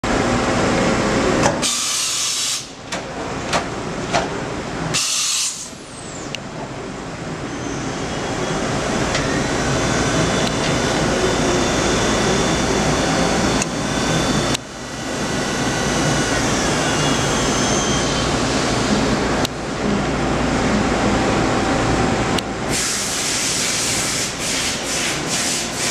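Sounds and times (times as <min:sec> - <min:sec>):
loud hiss bursts: 0:01.6 - 0:02.8, 0:05.0 - 0:05.8, 0:22.7 - 0:25.9
milling machine high whine: 0:07.5 - 0:19.3.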